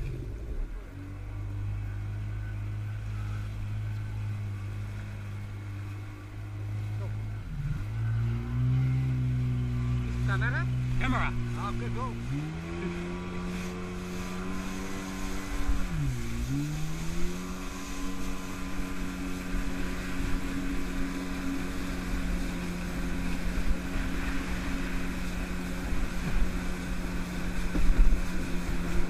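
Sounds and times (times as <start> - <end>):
jet ski engine running: 0.0 - 29.0
rush of wind and water: 0.0 - 29.0.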